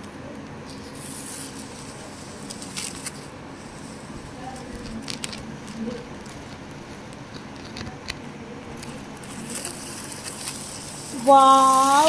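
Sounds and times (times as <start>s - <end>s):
plastic toy scraping on concrete: 9.2s - 12.0s.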